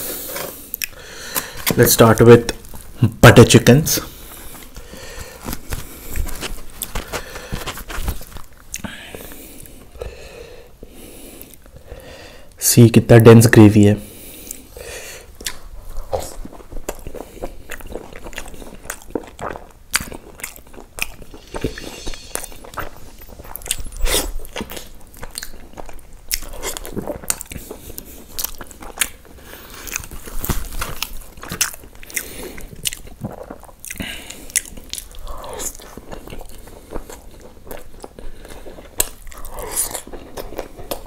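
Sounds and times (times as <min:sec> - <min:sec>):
person chewing food wetly: 0:00.0 - 0:01.8, 0:04.1 - 0:11.9, 0:14.3 - 0:21.5, 0:23.4 - 0:41.0
lip smacks and mouth clicks: 0:15.4 - 0:17.1.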